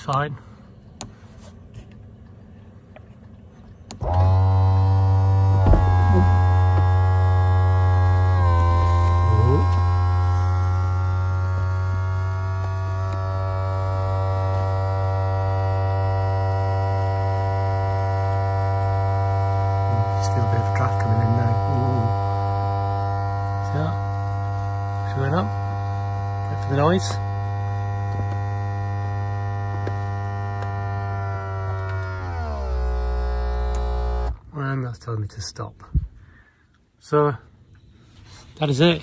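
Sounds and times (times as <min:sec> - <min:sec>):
electric motor humming and whining: 0:03.9 - 0:34.4.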